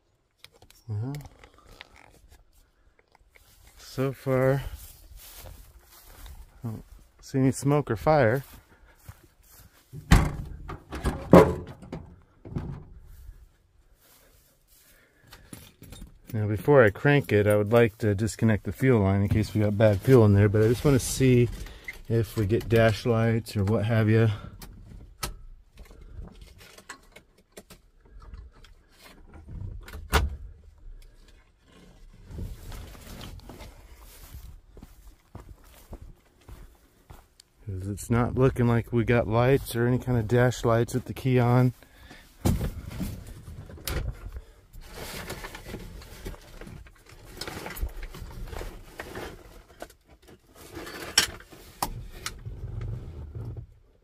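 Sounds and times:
clunks and scrapes in truck cab: 9.4 - 13.4, 24.4 - 35.4, 41.6 - 54.0
sharp knocks and clunks: 9.9 - 13.1.

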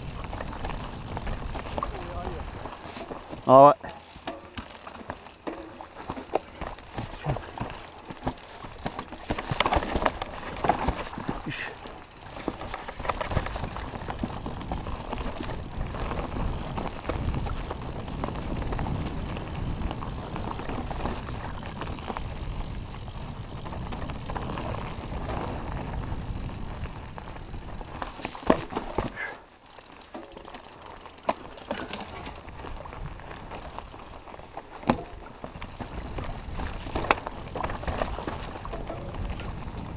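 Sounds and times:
wind rumble on microphone: 0.0 - 2.7, 12.3 - 28.3, 35.6 - 39.9
bike knocks and rattles: 0.0 - 39.9
tyres crunching over stones: 0.0 - 39.9.

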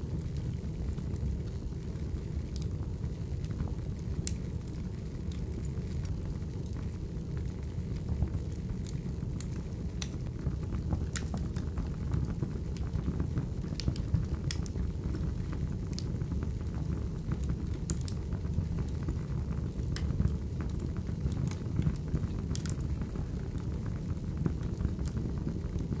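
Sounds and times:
fire crackles and pops: 0.0 - 26.0
fire flames rushing: 0.0 - 26.0.

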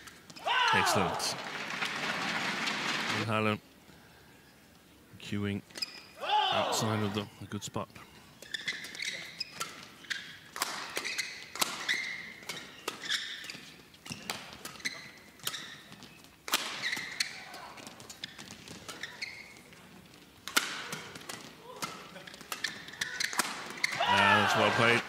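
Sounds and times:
shoes squeaking on court: 5.7 - 6.2, 8.2 - 25.0
racket hitting shuttlecock: 10.6 - 13.4, 16.5 - 19.0, 20.4 - 24.2.

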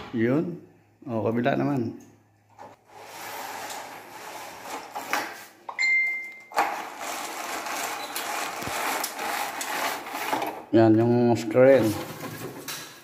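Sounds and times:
roller blind cord rattling: 2.6 - 5.4, 6.5 - 10.8.

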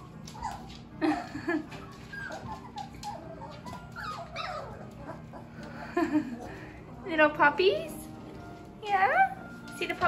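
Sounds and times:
puppies squeaking and whimpering: 0.0 - 1.0, 1.6 - 6.7, 8.8 - 9.9.

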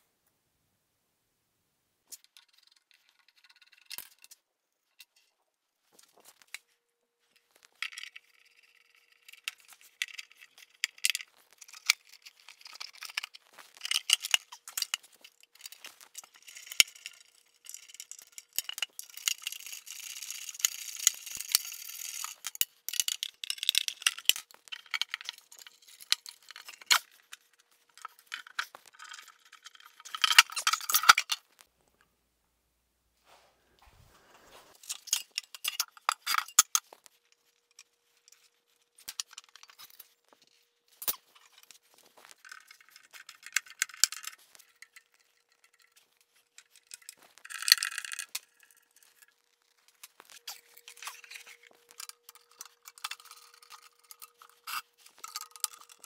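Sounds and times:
scraping and rustling: 33.2 - 56.0
metal tools clinking and rattling: 50.0 - 56.0.

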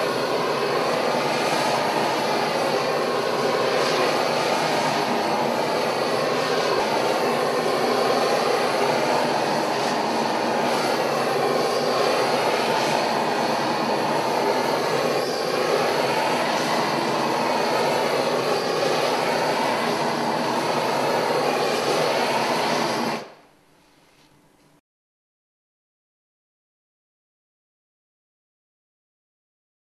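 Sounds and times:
gas torch flame rushing: 0.0 - 23.4.

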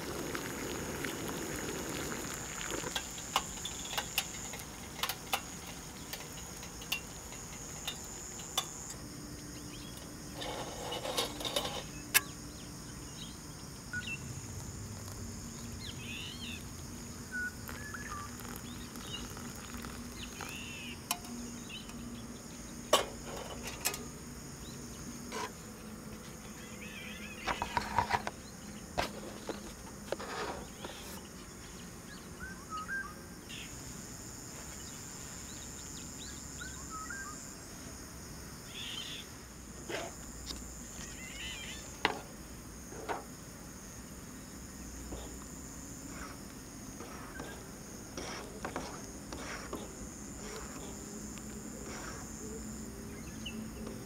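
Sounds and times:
water pouring into a paper cup: 0.0 - 6.4, 14.5 - 15.8, 16.5 - 21.3
insects chirping: 0.0 - 54.0
metal pot clinking: 2.5 - 9.0
bird calls: 26.4 - 28.8.

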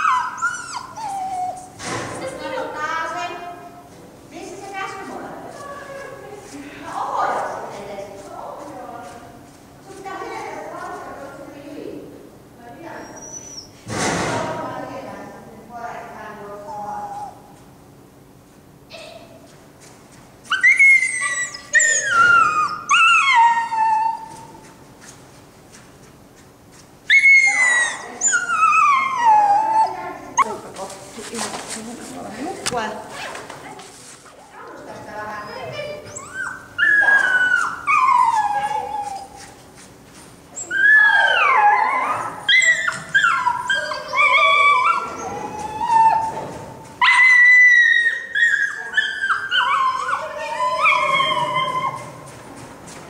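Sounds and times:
small dog whining yelps: 0.0 - 1.8, 13.0 - 13.7, 20.5 - 24.6, 27.1 - 30.5, 35.5 - 39.5, 40.6 - 46.4, 47.0 - 52.3.

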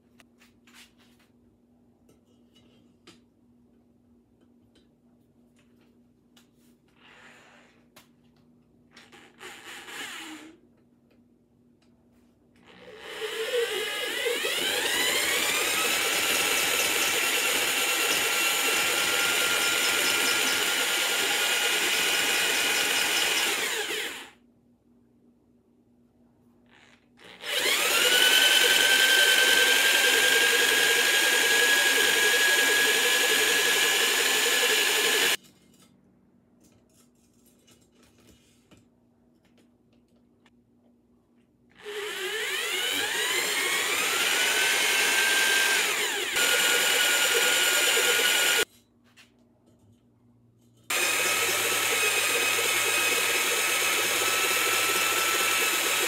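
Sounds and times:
electric drill whining: 12.6 - 24.4, 27.2 - 35.4, 41.8 - 48.7, 50.9 - 56.0.

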